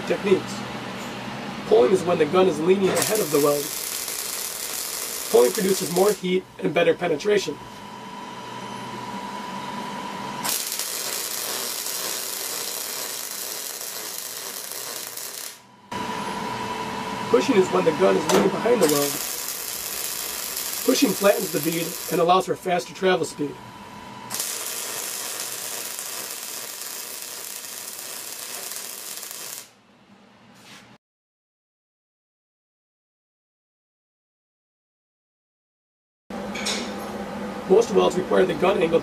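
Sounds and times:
welding arc crackling and sizzling: 3.0 - 6.3, 10.4 - 15.7, 18.7 - 22.4, 24.3 - 29.8.

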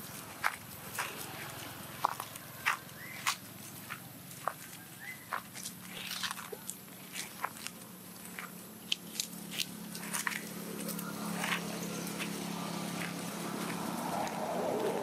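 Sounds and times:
dry leaves crunching: 0.0 - 15.0.

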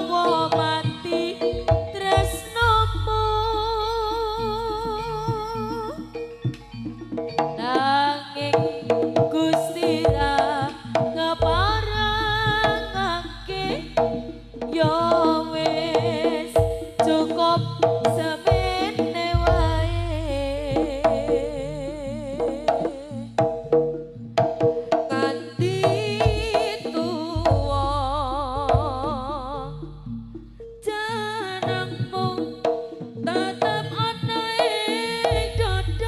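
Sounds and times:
hand drums: 0.0 - 36.0
ornamented melody with vibrato: 0.0 - 36.0
deep drum hits: 11.0 - 21.6, 27.4 - 29.3.

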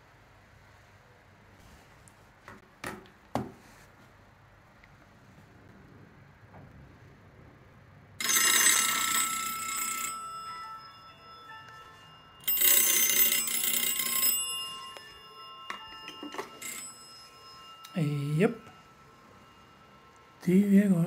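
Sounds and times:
telephone ringing: 8.2 - 21.0.

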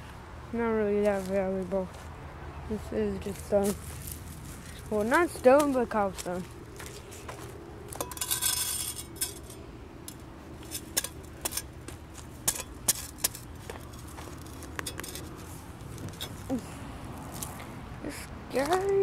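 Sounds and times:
shovel scraping gravelly dirt: 3.2 - 17.7.

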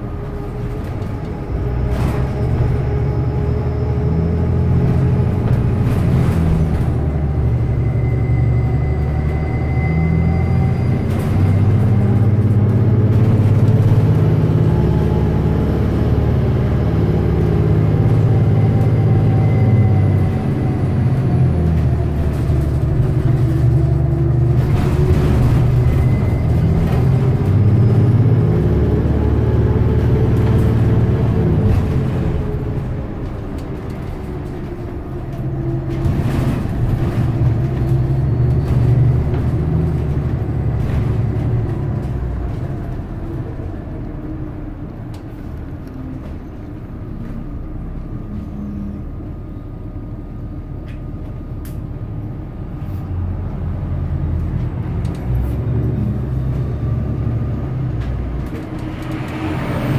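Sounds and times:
bus engine: 0.0 - 59.9
road noise: 0.0 - 59.9.

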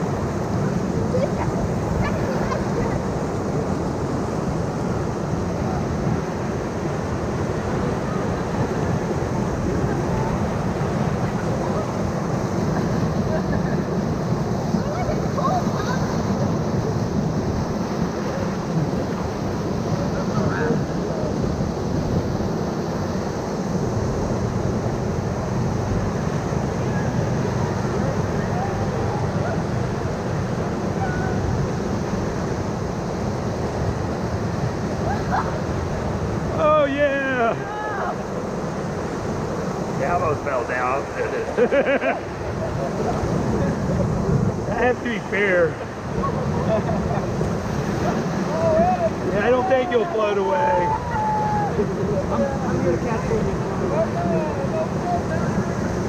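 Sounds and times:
whitewater rushing: 0.0 - 56.0
wind noise on microphone: 42.2 - 56.0.

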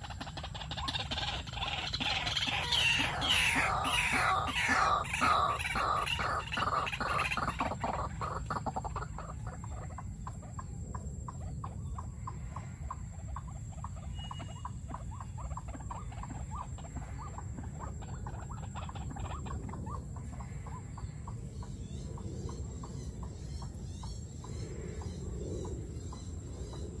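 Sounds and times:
waterhen calling: 0.0 - 10.4, 11.6 - 23.8.

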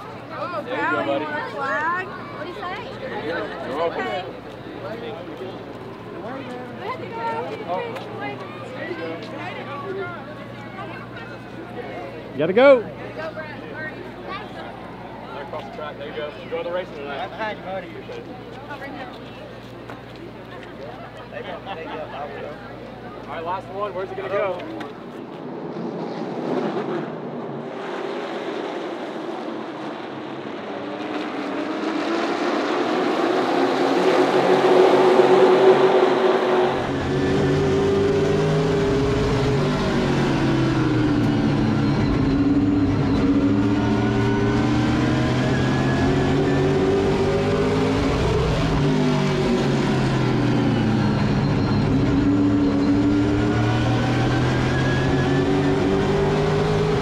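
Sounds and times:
race cars passing at speed: 23.4 - 57.0
race car engine revving: 25.6 - 57.0.

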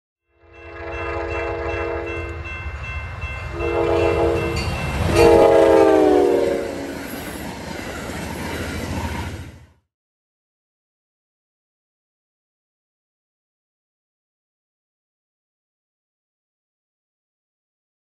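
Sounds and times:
locomotive air horn blasts: 0.3 - 2.4, 3.5 - 6.9
moving train rumble: 0.5 - 9.8.

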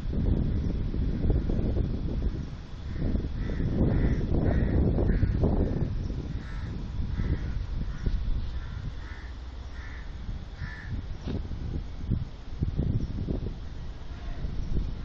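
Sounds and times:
crow cawing: 2.9 - 5.8, 6.4 - 11.0.

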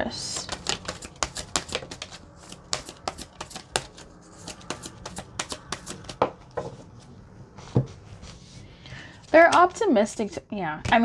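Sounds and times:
cards being shuffled: 0.4 - 6.2.

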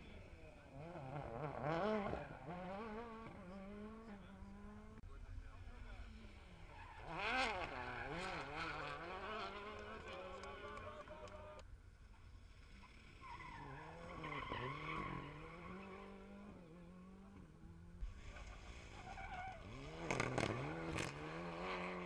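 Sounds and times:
rally car engine revving: 0.0 - 5.0, 6.3 - 11.6, 13.3 - 22.0
exhaust cracks: 18.1 - 21.3.

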